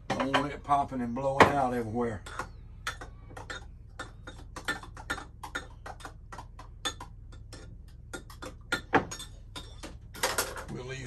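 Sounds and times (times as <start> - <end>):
utensil clinking glass bowl: 6.8 - 10.8.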